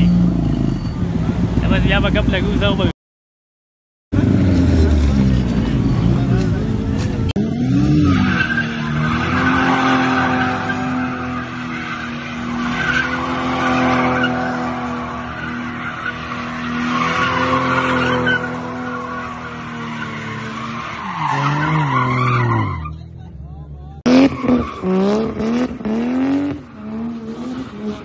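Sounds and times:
car engine at high revs: 0:04.1 - 0:22.6, 0:24.0 - 0:28.0
tyres spinning and screeching: 0:04.2 - 0:23.1.

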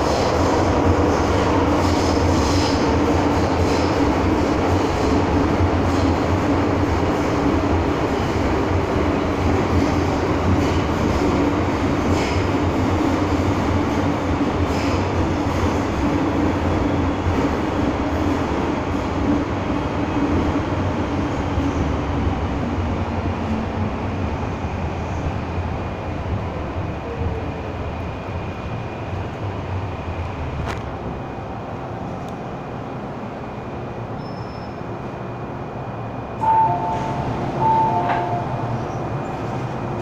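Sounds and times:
train wheels rumbling on rail: 0:00.0 - 0:40.0
faint high squeaks: 0:34.2 - 0:34.8.

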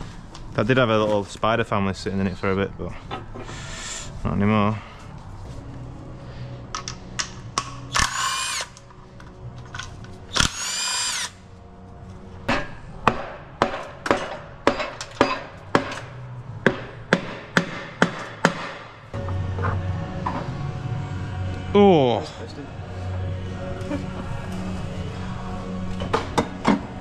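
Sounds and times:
cordless power tool whirring: 0:07.9 - 0:08.8, 0:10.3 - 0:11.4.

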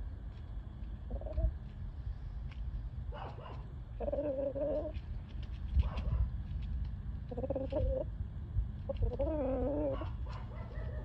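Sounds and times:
chickens clucking softly: 0:01.0 - 0:01.8, 0:03.2 - 0:05.1, 0:07.2 - 0:08.2, 0:08.8 - 0:11.0.

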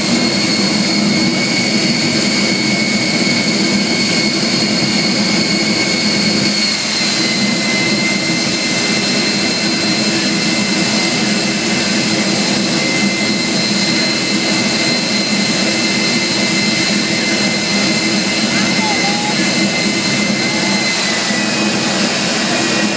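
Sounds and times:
turbine engine rushing with whine: 0:00.0 - 0:22.9.

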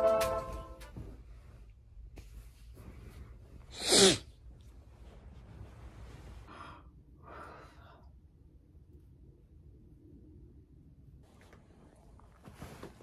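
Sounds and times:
soft breaths: 0:01.4 - 0:08.5.

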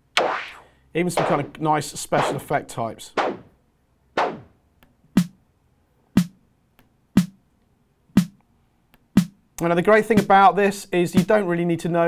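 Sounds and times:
synthesized snare drum hits: 0:01.2 - 0:01.6, 0:02.2 - 0:02.5, 0:03.2 - 0:03.5, 0:04.2 - 0:04.5, 0:05.2 - 0:05.4, 0:06.2 - 0:06.4, 0:09.2 - 0:09.4.

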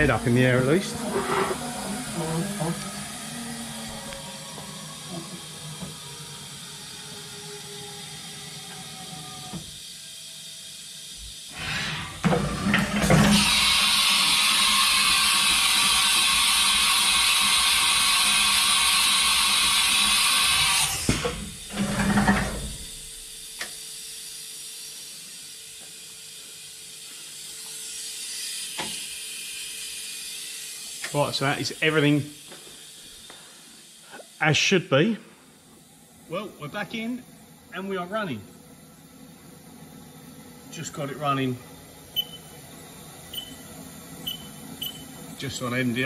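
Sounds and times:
compressed air hissing: 0:00.0 - 0:03.0, 0:10.8 - 0:12.2, 0:26.4 - 0:35.7
faint machine hum: 0:00.0 - 0:14.0, 0:14.6 - 0:46.0.

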